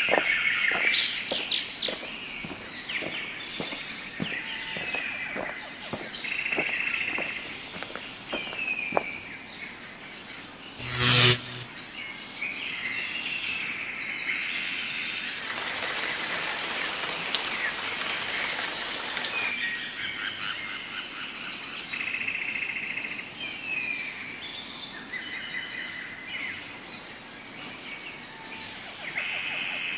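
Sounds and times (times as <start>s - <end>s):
birds chirping and trilling: 0.0s - 9.6s
loud short sound: 10.8s - 11.7s
high thin whine: 10.8s - 11.8s
hiss: 15.4s - 19.5s.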